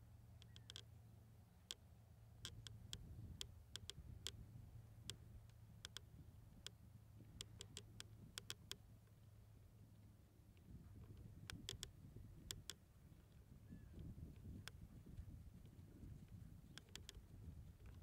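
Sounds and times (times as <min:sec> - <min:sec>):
horse hooves clicking on sand: 0:14.0 - 0:18.0.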